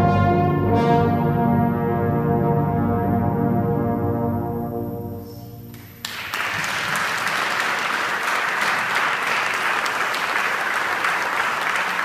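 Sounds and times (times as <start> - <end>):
brass ensemble chord: 0.0 - 5.7
audience applause: 5.8 - 12.0.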